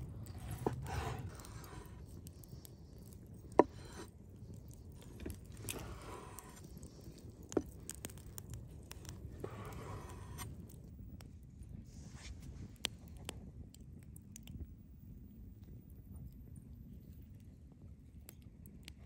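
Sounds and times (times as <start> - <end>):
knife scraping strokes: 0.2 - 2.0, 3.6 - 4.1, 9.4 - 10.5.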